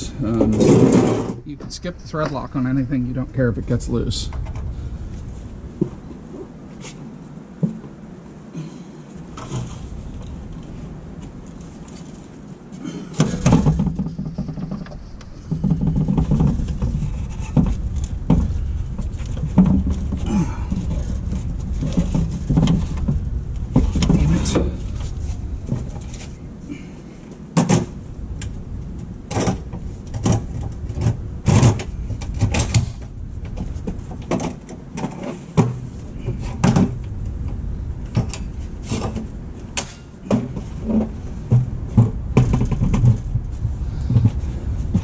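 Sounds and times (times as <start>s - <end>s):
low rumble: 0.0s - 6.7s, 13.6s - 27.2s, 35.8s - 39.8s, 40.6s - 45.0s.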